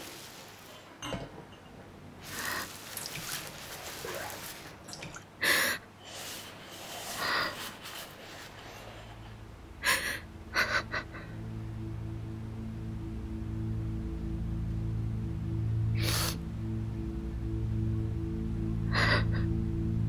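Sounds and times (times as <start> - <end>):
woman sobbing: 9.8 - 11.4, 18.9 - 19.5.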